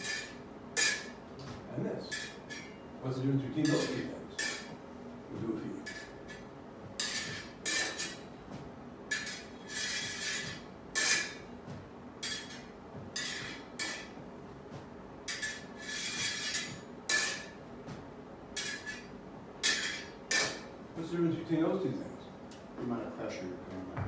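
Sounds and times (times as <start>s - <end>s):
sword blades clinking and scraping: 0.0s - 1.1s, 3.7s - 4.7s, 7.0s - 8.2s, 9.1s - 11.4s, 12.2s - 14.1s, 15.3s - 17.6s, 18.6s - 20.6s.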